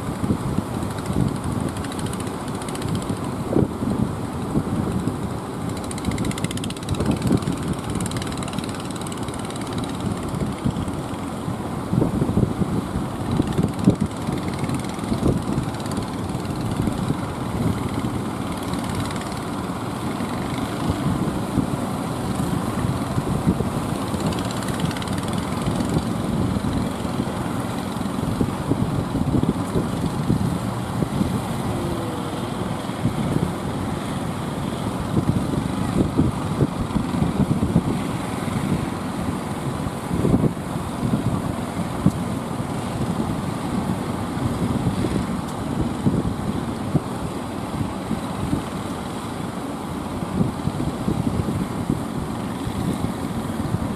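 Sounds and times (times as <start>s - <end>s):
boat engines running hard: 0.0s - 53.9s
waves rushing: 12.9s - 45.9s.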